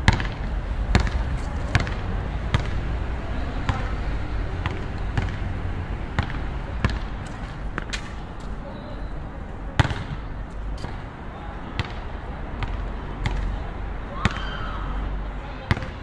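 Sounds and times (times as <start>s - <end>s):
basketball bouncing: 0.0s - 2.8s, 3.6s - 4.0s, 4.6s - 8.6s, 9.8s - 11.1s, 11.7s - 13.5s, 15.7s - 16.0s
low city rumble: 0.0s - 16.0s.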